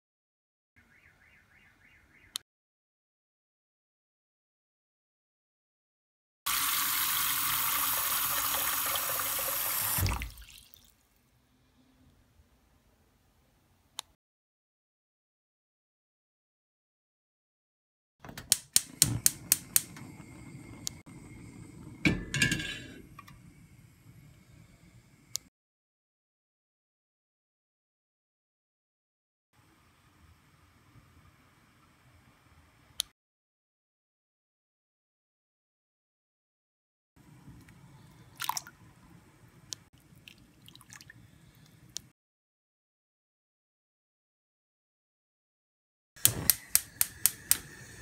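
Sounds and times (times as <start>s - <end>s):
meat splashing into pot of water: 9.9s - 11.0s, 38.4s - 38.7s
gas igniter clicking: 18.4s - 21.0s, 46.2s - 48.0s
gas flame hissing: 18.5s - 25.5s, 46.2s - 48.0s
metal pot clanking on grate: 22.0s - 23.0s.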